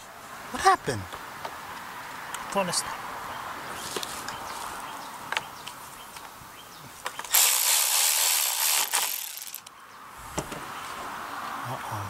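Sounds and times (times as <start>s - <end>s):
fast high-pitched ratcheting rasp: 7.3s - 9.7s.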